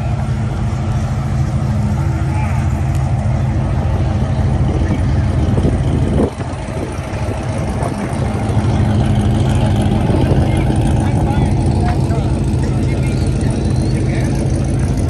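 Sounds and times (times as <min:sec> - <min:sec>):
car engine pulling away: 0:00.0 - 0:15.0.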